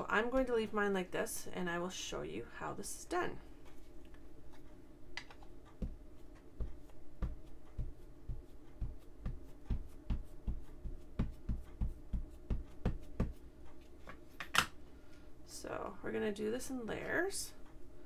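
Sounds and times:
ink pad tapping on plate: 6.6s - 13.4s.

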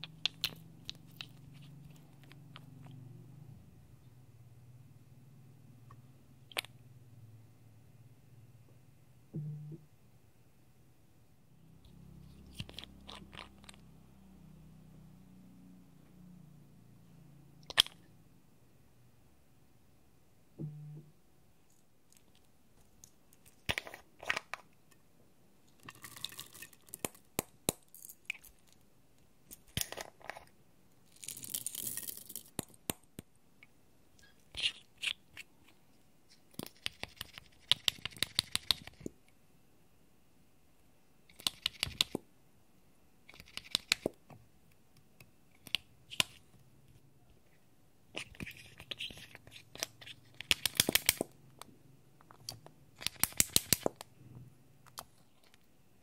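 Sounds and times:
plastic caps clicking open: 17.6s - 18.0s, 48.2s - 51.3s, 52.3s - 54.1s.

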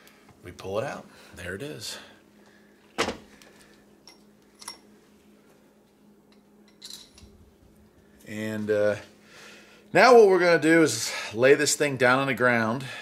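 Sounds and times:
faint steady hum: 0.0s - 13.0s
metal clinks with ring: 4.0s - 4.8s, 6.3s - 7.3s.

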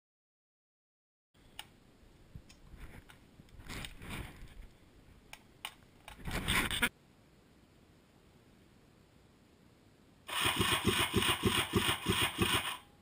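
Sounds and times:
rustling: 2.4s - 4.9s.

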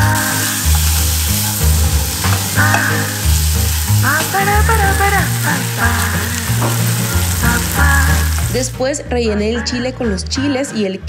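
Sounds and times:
food sizzling in a frying pan: 0.0s - 8.8s
background music with bass beat: 0.0s - 11.0s
spatula scraping a pan: 0.5s - 4.3s.

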